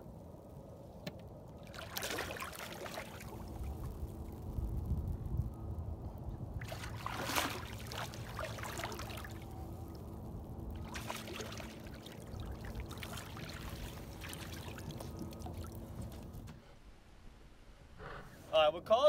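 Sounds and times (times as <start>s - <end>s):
fish thrashing and splashing: 1.7s - 3.9s, 6.6s - 9.5s, 10.8s - 16.4s
low rumble: 3.2s - 18.5s.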